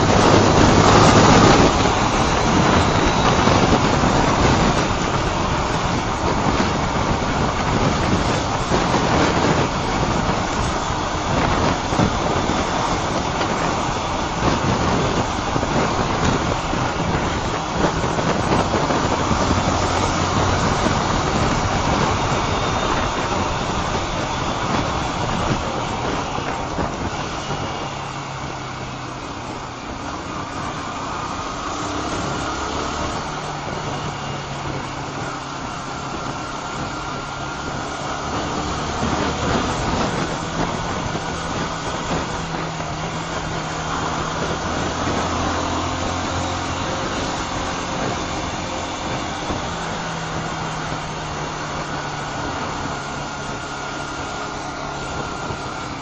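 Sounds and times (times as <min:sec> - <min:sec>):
motorcycle engine running: 0:00.0 - 0:56.0
wind noise on microphone: 0:00.0 - 0:56.0.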